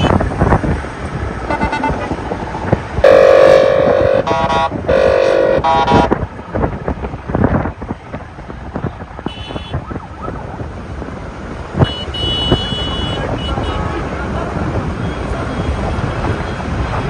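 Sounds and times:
car horns honking: 0.0 - 0.3, 1.5 - 2.4, 3.0 - 6.2, 9.2 - 9.8, 11.8 - 14.4
traffic noise: 0.0 - 17.0
wind buffeting microphone: 0.0 - 17.0
short high-pitched tones: 1.5 - 2.1.

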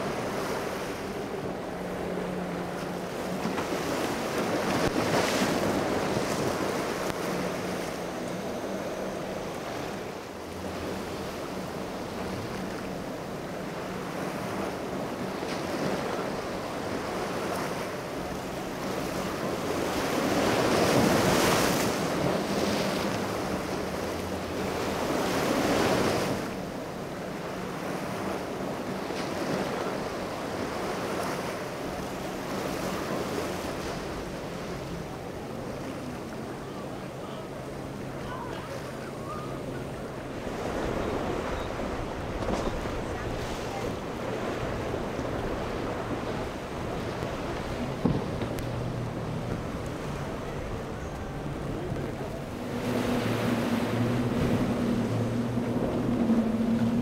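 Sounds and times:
breaking waves: 0.0 - 57.0
outboard engines humming: 0.0 - 57.0
wind buffeting microphone: 39.5 - 57.0.

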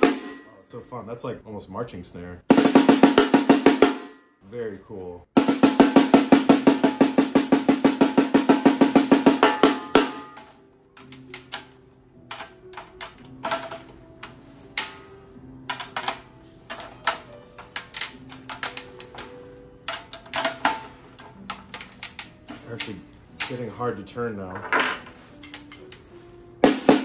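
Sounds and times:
snare drum roll: 2.5 - 4.1, 5.4 - 10.4, 26.6 - 27.0.

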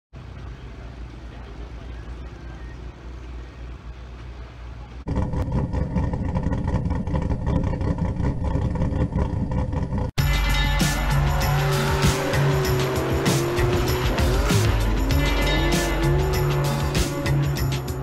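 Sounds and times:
car engine revving: 5.0 - 18.0
logo jingle with steady beat: 10.2 - 18.0.

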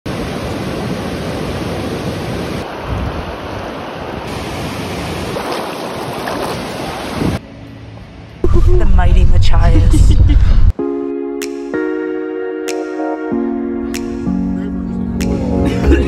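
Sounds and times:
wind on microphone: 1.7 - 7.4, 8.4 - 10.7.

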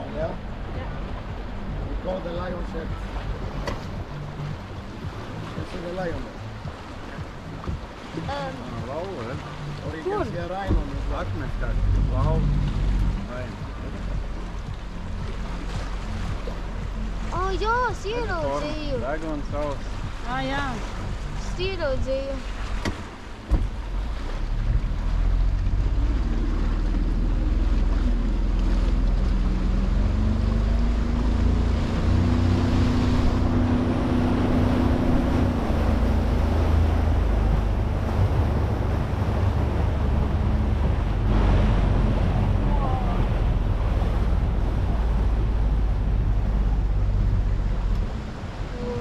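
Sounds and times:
boat engine running: 0.0 - 49.0
water rushing past hull: 0.0 - 49.0
wind buffeting microphone: 24.7 - 49.0.

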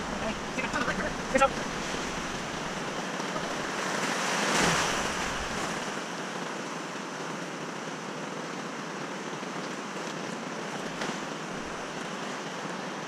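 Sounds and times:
wave washing over camera: 0.0 - 6.2
river rapids rushing: 0.0 - 8.1, 9.2 - 13.0.

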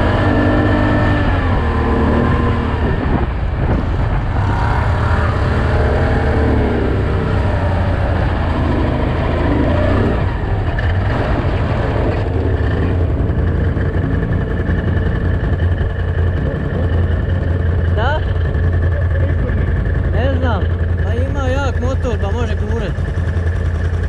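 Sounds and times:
wind on microphone: 0.0 - 20.1
off-road vehicle engine: 0.0 - 24.0.

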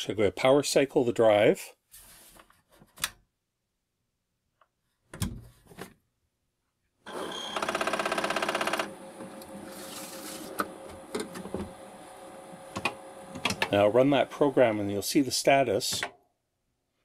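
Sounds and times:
disk drive running hum: 7.1 - 14.8
floppy disk drive rattling: 10.5 - 14.3
disk inserted clicks: 12.7 - 13.8.

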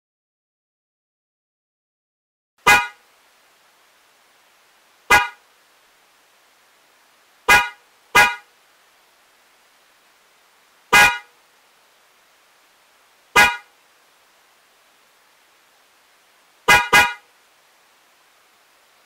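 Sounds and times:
electric car horn honks: 2.6 - 3.0, 5.1 - 5.4, 7.5 - 8.5, 10.9 - 11.3, 13.4 - 13.7, 16.7 - 17.3.

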